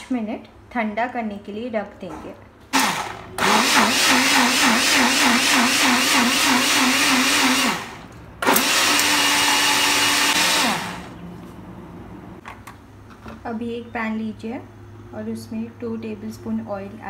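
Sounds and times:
blender motor grinding paste: 2.8s - 11.1s.

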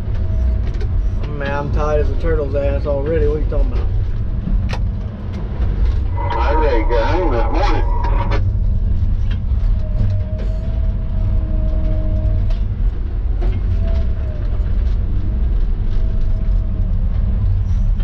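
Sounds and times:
heavy diesel engine rumble: 0.0s - 18.0s
thin machine whine: 5.8s - 8.4s.

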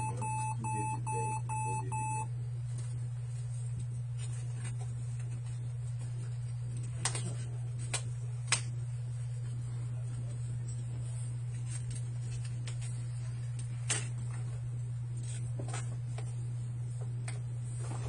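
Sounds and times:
laptop short high beeps: 0.0s - 2.3s
steady low hum: 0.0s - 18.0s.

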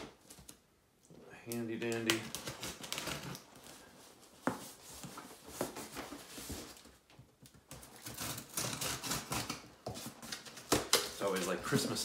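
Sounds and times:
cardboard and tape scraping: 1.9s - 7.0s, 7.6s - 12.0s.

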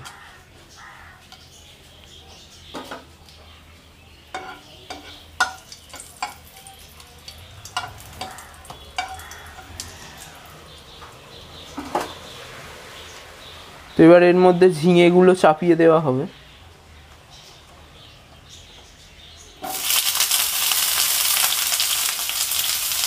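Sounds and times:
chillies sizzling in oil: 4.0s - 10.8s, 19.6s - 23.0s.

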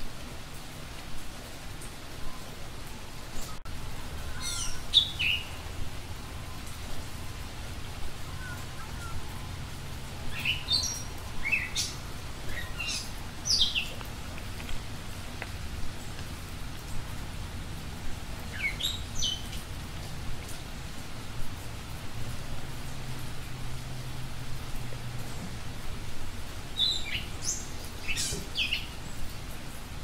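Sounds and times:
low background hiss: 0.0s - 30.0s
songbird chirping: 3.3s - 17.2s, 18.1s - 21.0s, 26.7s - 29.3s.

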